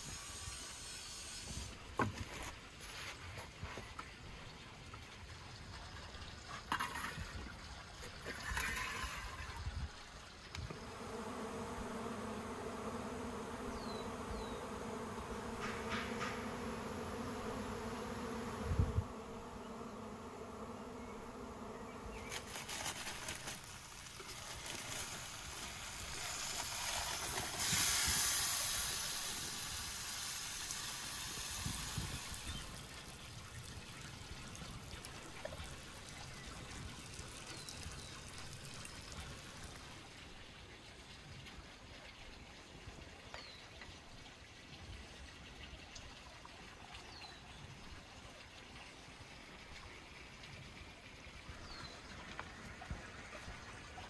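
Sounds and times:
insect buzzing: 0:10.6 - 0:36.2
aluminium foil crinkling: 0:22.1 - 0:27.7.

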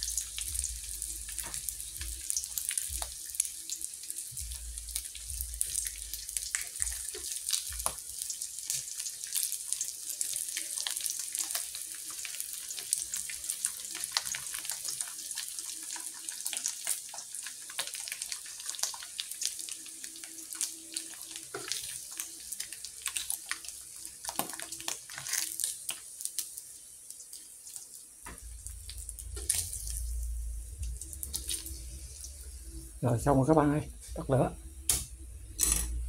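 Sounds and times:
fish frying in oil: 0:00.0 - 0:36.0
low rumble: 0:28.4 - 0:36.0.

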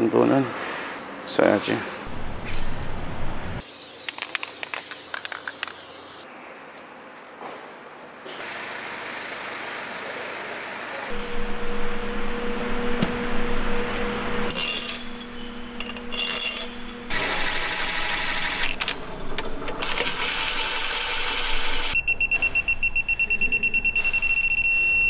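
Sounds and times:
steady hum: 0:11.1 - 0:19.8.

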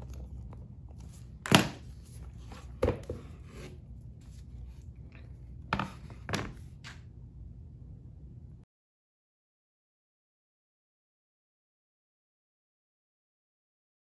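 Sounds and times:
low steady hum: 0:00.0 - 0:08.7.

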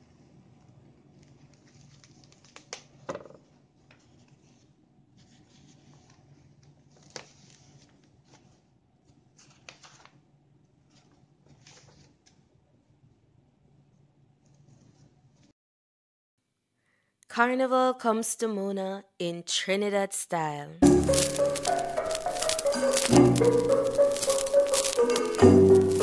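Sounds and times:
paper pages rustling: 0:00.2 - 0:12.4, 0:20.8 - 0:26.0.

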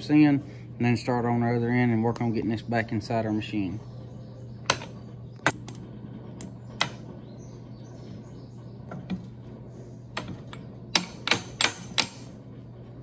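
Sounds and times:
steady low hum: 0:00.0 - 0:13.0
sharp metal clicks and taps: 0:10.9 - 0:12.3.

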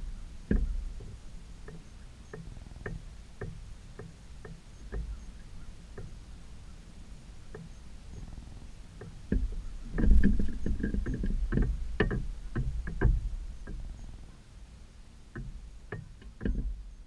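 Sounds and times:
wind rumble on microphone: 0:00.0 - 0:04.0, 0:04.7 - 0:17.0
close knocks and clicks: 0:00.4 - 0:05.2, 0:09.0 - 0:14.0, 0:15.3 - 0:17.0.

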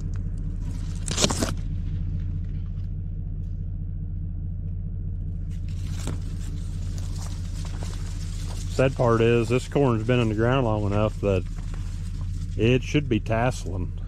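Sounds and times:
engine idling: 0:00.0 - 0:14.0
rustling scrape: 0:05.4 - 0:13.0.

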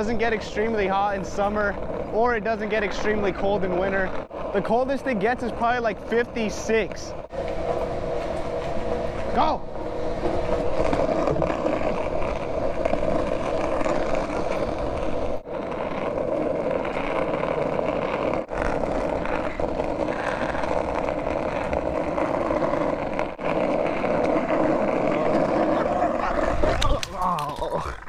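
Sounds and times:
skateboard wheels rolling on asphalt: 0:00.0 - 0:28.0.

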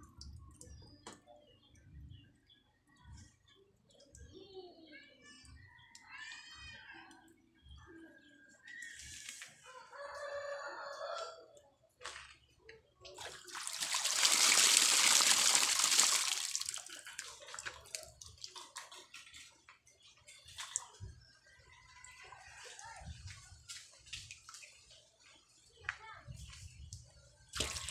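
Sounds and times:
rooster crowing: 0:09.7 - 0:11.5
water pouring and splashing: 0:13.1 - 0:21.3, 0:22.2 - 0:25.0, 0:27.5 - 0:27.9.

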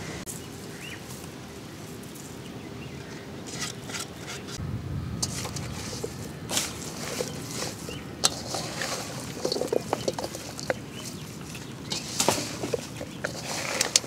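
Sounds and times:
low rumble: 0:04.6 - 0:06.8
clicks and rustles in steel bowl: 0:05.2 - 0:14.0.

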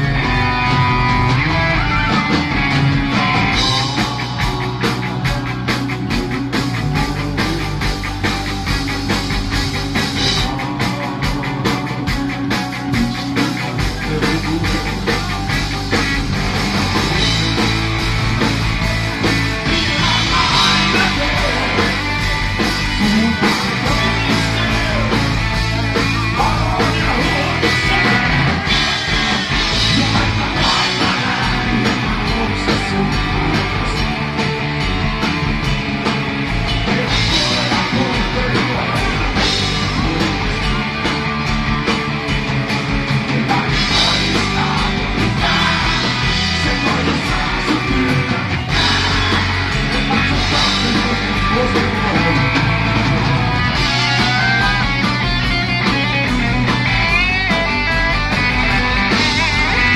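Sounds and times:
electric guitar: 0:00.0 - 0:59.9
steady drum beat: 0:00.0 - 0:59.9
man singing: 0:02.1 - 0:08.2, 0:10.1 - 0:16.0, 0:16.8 - 0:18.5, 0:19.6 - 0:34.4, 0:36.8 - 0:41.0, 0:43.1 - 0:55.2.

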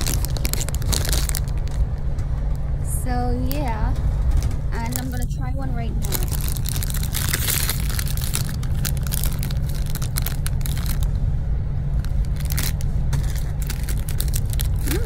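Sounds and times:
plastic wrapper crinkling: 0:00.0 - 0:01.9, 0:04.8 - 0:05.4, 0:06.0 - 0:11.1, 0:12.0 - 0:15.0
bus rumbling: 0:00.0 - 0:15.0.

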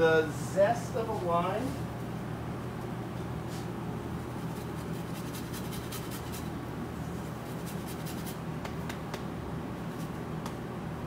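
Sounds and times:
low kitchen hum: 0:00.0 - 0:11.0
lime scraping on grater: 0:04.5 - 0:06.5.

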